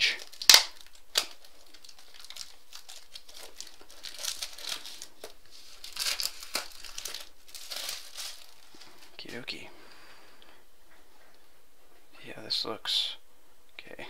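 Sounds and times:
plastic shrink wrap crinkling: 0.0 - 9.4.

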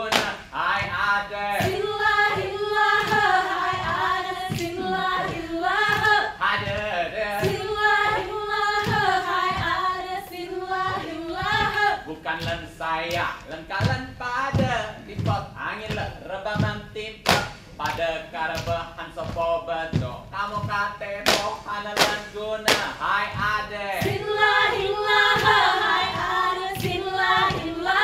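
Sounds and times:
sharp claps and slaps: 0.0 - 9.7, 11.0 - 14.8, 15.9 - 20.1, 21.2 - 27.8
group singing in unison: 0.0 - 14.7, 20.9 - 28.0.

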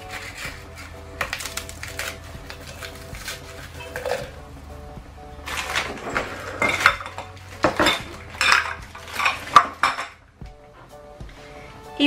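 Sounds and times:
biscuits snapping: 0.1 - 4.4.

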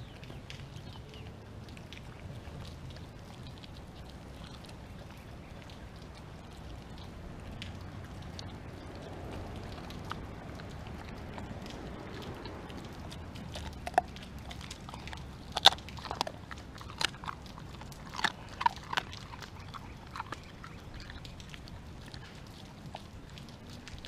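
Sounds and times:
dog crunching bones: 0.0 - 24.0.

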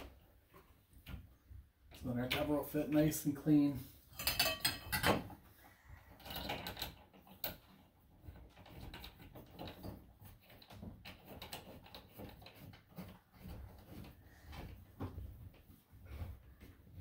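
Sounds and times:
faint clicks and scraping: 4.0 - 17.0.

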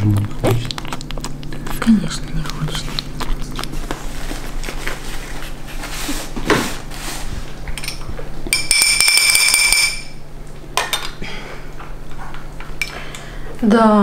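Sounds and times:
spoon clinking on metal bowl: 7.8 - 10.2
bowl ringing tone: 8.5 - 10.2.

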